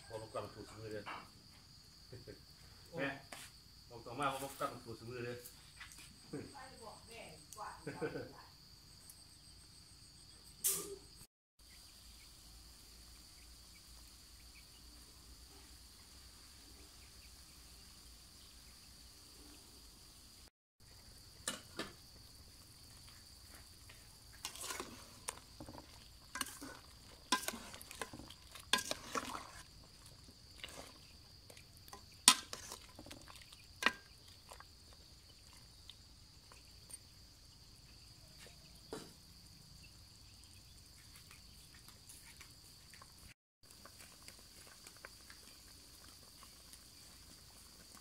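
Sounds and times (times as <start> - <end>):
crickets trilling: 0.0 - 48.0
utensil stirring and clinking in a pot: 24.3 - 35.8.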